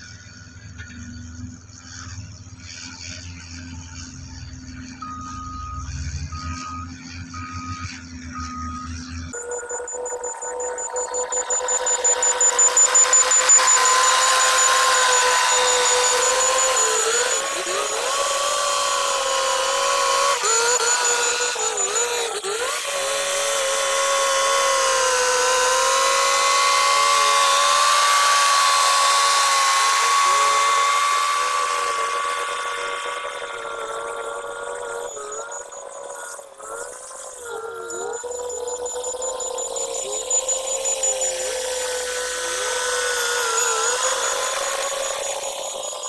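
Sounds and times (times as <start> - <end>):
bulldozer engine and tracks: 0.0 - 46.0
bulldozer mechanical whine: 0.0 - 46.0.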